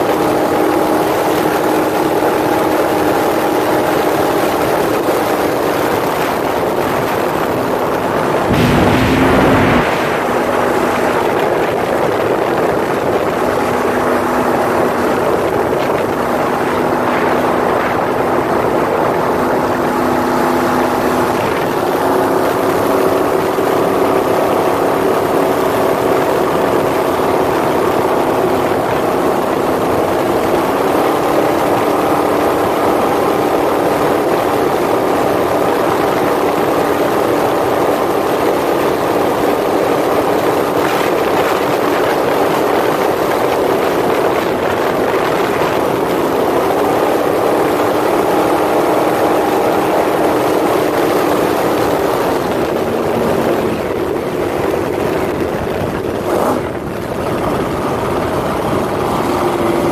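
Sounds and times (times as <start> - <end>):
speedboat engine running hard: 0.0 - 59.9
water rush: 0.0 - 59.9
wind rush: 0.0 - 59.9.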